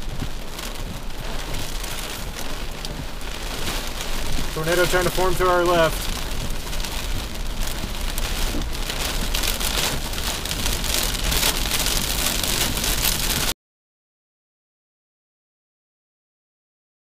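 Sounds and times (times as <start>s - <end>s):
car rumbling on road: 0.0s - 13.5s
rain pattering on car windshield: 0.0s - 13.5s.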